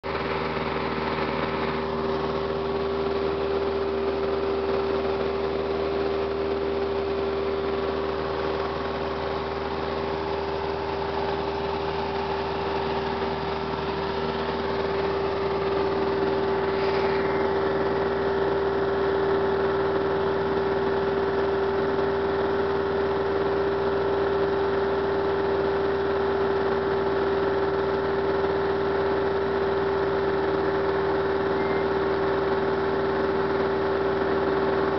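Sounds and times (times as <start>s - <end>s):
strong steady hum: 0.0s - 26.6s, 30.4s - 34.9s
airplane engine and propeller droning: 0.1s - 19.9s.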